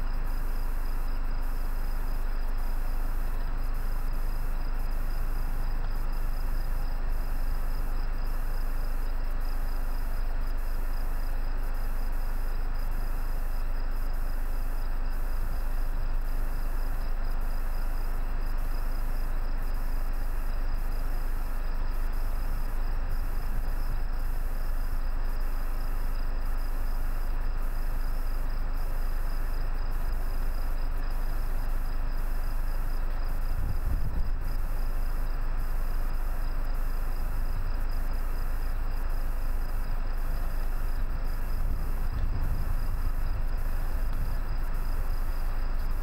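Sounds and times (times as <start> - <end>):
insects trilling: 0.0 - 46.0
steady low rumble: 33.0 - 34.6, 40.0 - 46.0.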